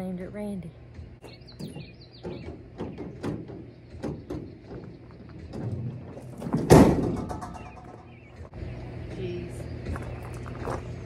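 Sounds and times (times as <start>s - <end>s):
tailgate banging open: 1.6s - 8.0s.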